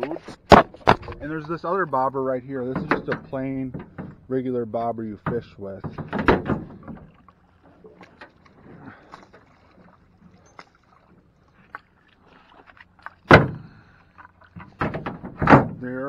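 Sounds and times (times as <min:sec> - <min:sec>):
oar knocking in shallow water: 0:02.6 - 0:04.3, 0:05.2 - 0:15.9
oar striking metal boat side: 0:02.6 - 0:04.5, 0:05.1 - 0:07.2, 0:13.2 - 0:13.8, 0:14.6 - 0:16.0.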